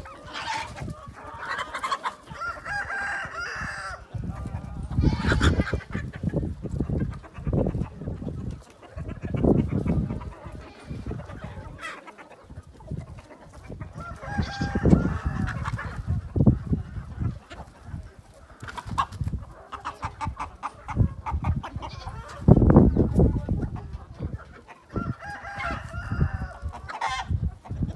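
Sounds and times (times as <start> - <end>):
chickens clucking: 0.0 - 27.9
rooster crowing: 2.3 - 4.0, 14.0 - 15.5, 24.9 - 26.6.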